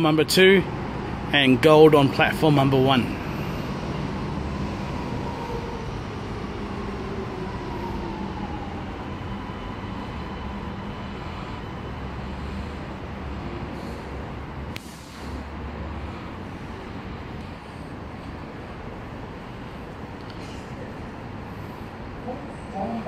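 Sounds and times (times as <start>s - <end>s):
metro train rumble: 0.0s - 23.0s.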